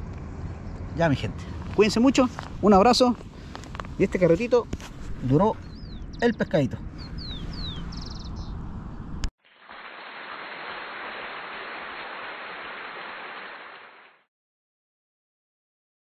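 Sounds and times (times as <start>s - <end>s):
bird chirps: 5.5s - 8.6s
steady rushing hiss: 9.5s - 14.1s.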